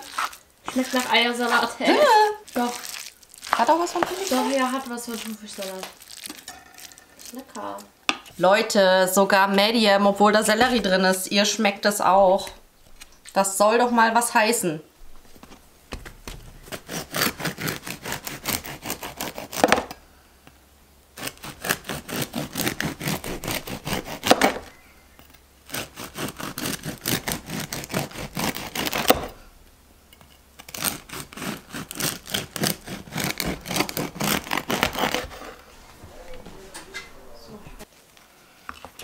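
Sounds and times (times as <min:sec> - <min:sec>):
bread knife sawing crusty loaf: 0:00.0 - 0:05.9, 0:16.6 - 0:19.9, 0:21.2 - 0:24.7, 0:25.6 - 0:29.4, 0:30.6 - 0:35.8.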